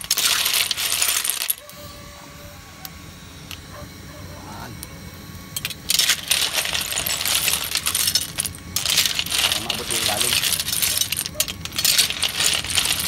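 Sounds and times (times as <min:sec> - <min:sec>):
shells clattering in a metal pan: 0:00.0 - 0:01.6, 0:05.6 - 0:13.0.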